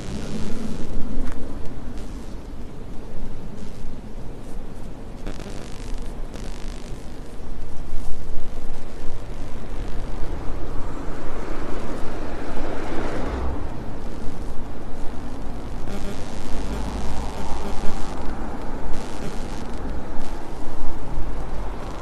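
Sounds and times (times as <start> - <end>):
road traffic: 0.0 - 22.0
vehicle passing: 9.6 - 15.7.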